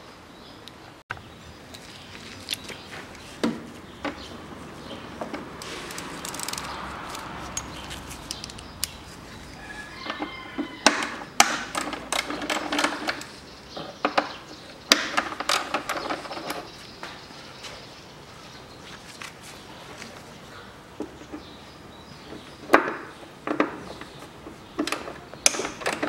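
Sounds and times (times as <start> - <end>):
socket wrench clicking: 5.9 - 9.0.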